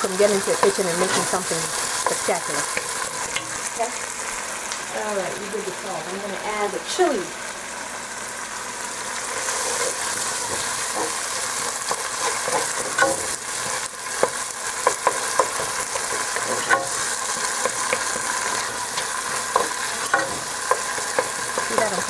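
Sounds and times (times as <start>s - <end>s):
tomatoes sizzling in oil: 0.0s - 22.0s
wooden spoon stirring and mashing: 9.4s - 22.0s.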